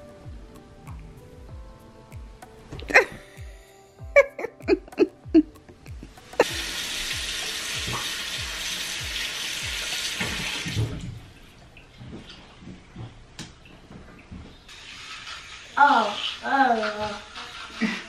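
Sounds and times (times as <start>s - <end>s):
background music with beat: 0.0s - 10.5s
tap water running into sink: 6.4s - 11.4s, 14.7s - 18.0s.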